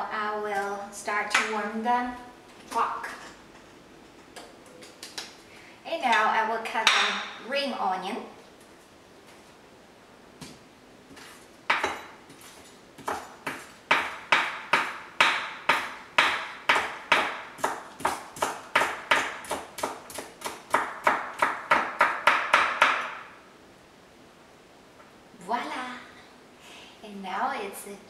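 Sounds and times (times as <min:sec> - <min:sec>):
knife chopping on wooden board: 0:11.2 - 0:23.2.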